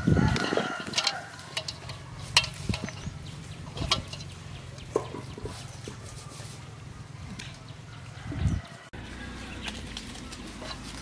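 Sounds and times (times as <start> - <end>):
feathers rustling and scraping: 0.0 - 7.7, 8.6 - 11.0
clicks and knocks on metal basin: 0.3 - 3.0, 3.7 - 5.5.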